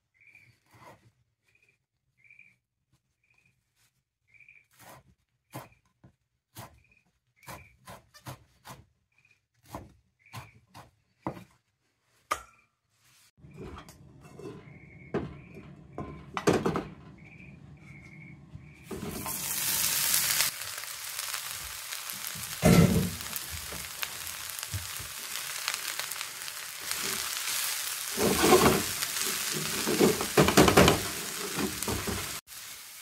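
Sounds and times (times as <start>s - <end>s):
knife chopping on wooden board: 9.6s - 11.5s
food sizzling in hot oil: 18.9s - 33.0s
pan and bowl knocks: 22.6s - 23.2s.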